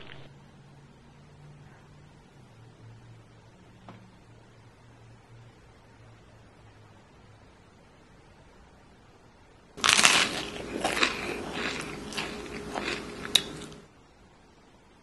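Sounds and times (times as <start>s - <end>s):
crunching bites and chewing: 9.8s - 13.8s.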